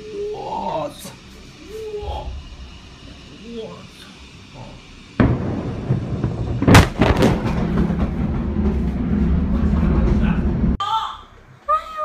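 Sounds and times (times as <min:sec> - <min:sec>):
explosion boom and rumble: 0:05.2 - 0:10.8
sharp cracks: 0:05.2 - 0:10.8.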